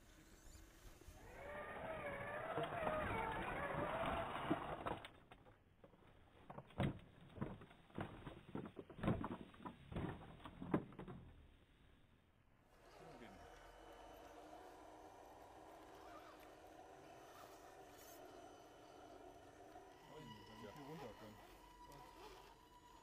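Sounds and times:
toy car motor whining: 0.0 - 5.2, 12.7 - 23.0
plastic knocks and clatters: 5.3 - 11.4.

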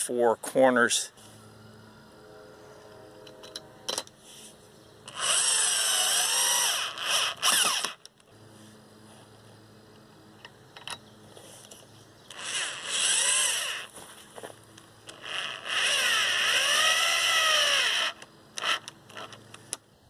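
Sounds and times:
electric drill drilling into wood: 5.1 - 8.0, 12.3 - 13.9, 15.1 - 19.3.

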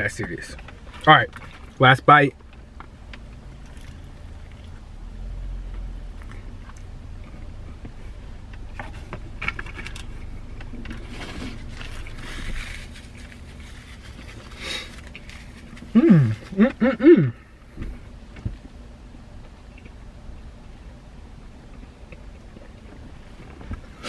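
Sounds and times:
low hum inside car: 0.0 - 24.0
person chewing: 3.6 - 4.8.

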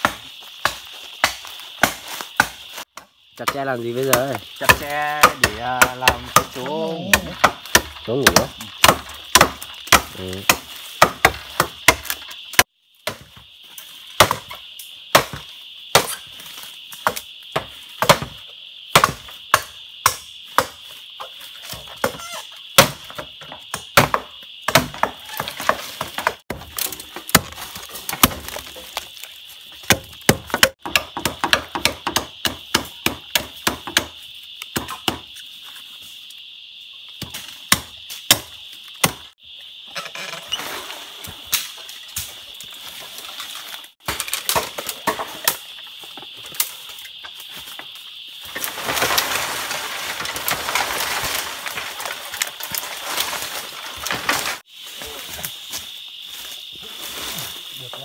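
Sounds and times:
blade chopping bamboo: 3.5 - 13.3, 17.0 - 20.8, 22.8 - 29.0, 29.8 - 34.1.

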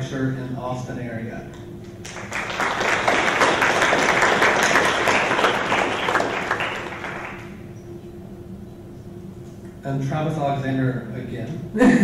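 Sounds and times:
audience clapping: 2.0 - 7.6.

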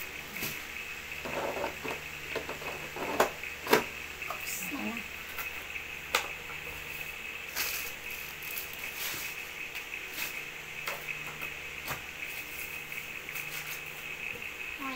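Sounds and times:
packaging wrap crinkling: 7.6 - 9.2.

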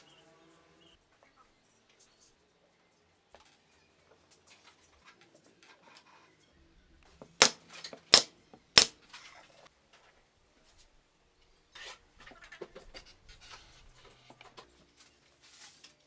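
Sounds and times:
sharp loud cracks: 7.4 - 9.0.

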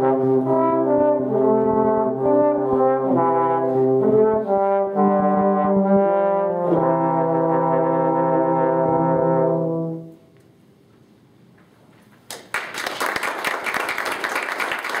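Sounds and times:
audience applause: 12.3 - 15.0.

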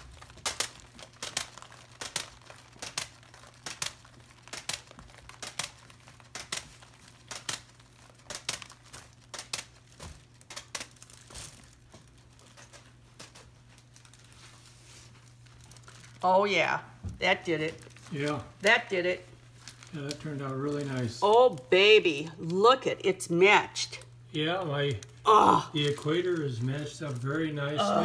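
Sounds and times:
spinning turntable ticking and crackling: 0.0 - 11.2.

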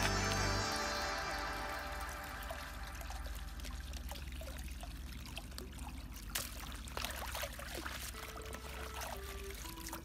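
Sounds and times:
water pouring into a plastic tub: 2.3 - 10.0.

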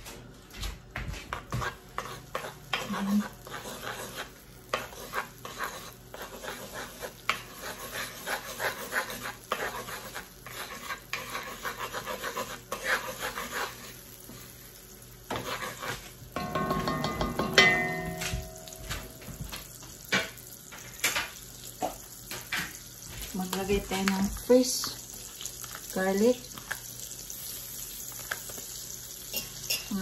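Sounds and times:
spatula scraping a wok: 1.3 - 18.8
faint butter sizzle: 2.0 - 16.4, 18.4 - 30.0
multi-pitched tone: 16.4 - 19.4.

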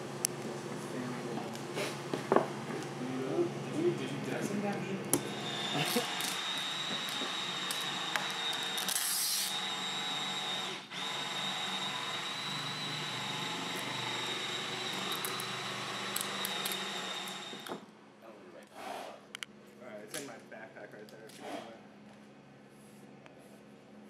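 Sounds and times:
machine motor whining: 5.2 - 17.9.

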